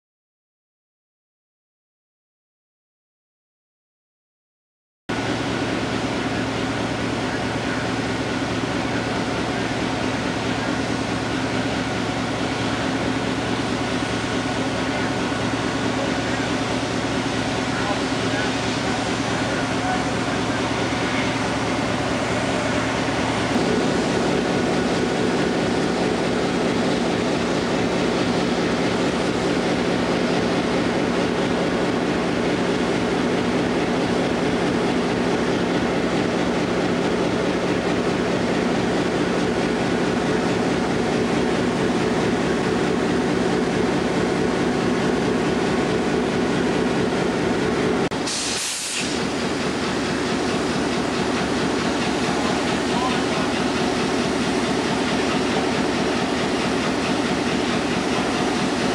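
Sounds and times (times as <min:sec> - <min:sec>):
diesel locomotive idling: 0:05.1 - 0:58.9
short hiss: 0:48.2 - 0:49.2.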